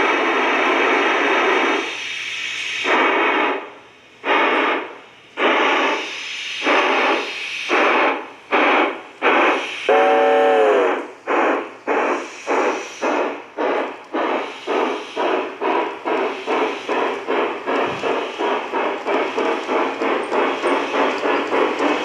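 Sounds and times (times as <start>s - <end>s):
model steam locomotive chuffing: 0.0s - 22.0s
train whistle blast: 9.6s - 11.1s.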